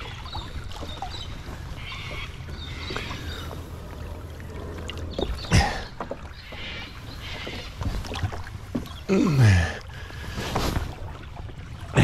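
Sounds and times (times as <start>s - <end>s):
paddle strokes splashing: 0.0s - 12.0s.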